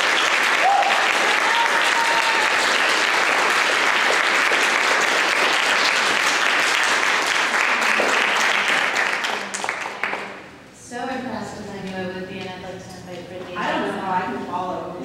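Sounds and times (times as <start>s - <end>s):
audience applauding: 0.0s - 10.5s.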